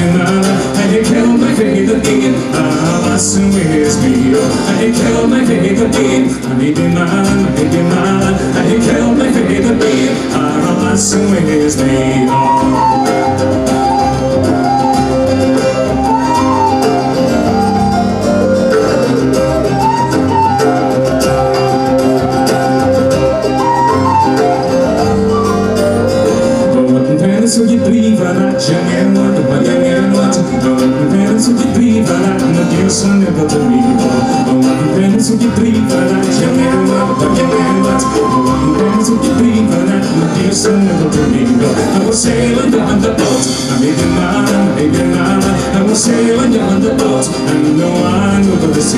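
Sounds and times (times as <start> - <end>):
bass line: 0.0 - 48.9
folk band playing a ballad: 0.0 - 48.9
strummed acoustic guitar: 0.0 - 48.9
whistle melody: 11.7 - 31.0, 32.8 - 35.3, 36.2 - 41.0.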